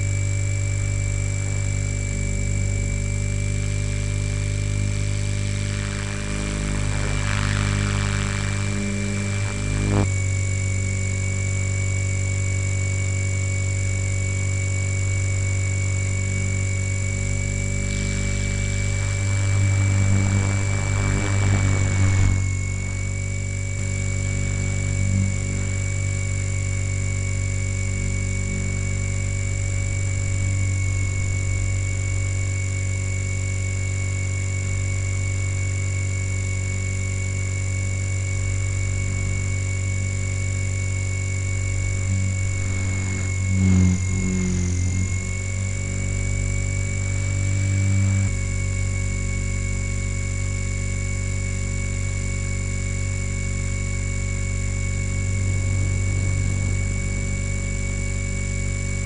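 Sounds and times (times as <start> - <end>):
helicopter rotor buzz: 0.0 - 12.1, 14.6 - 31.8, 39.0 - 49.9
electric motor whine: 0.0 - 59.0.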